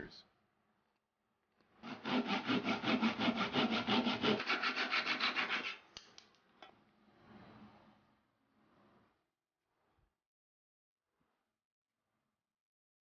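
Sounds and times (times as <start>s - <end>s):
saw cutting plywood: 1.8s - 5.9s.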